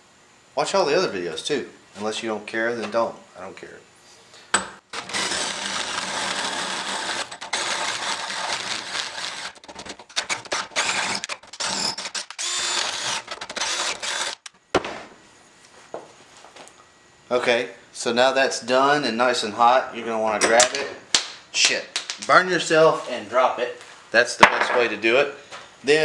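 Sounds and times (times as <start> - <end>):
drill boring through metal: 4.9 - 14.5.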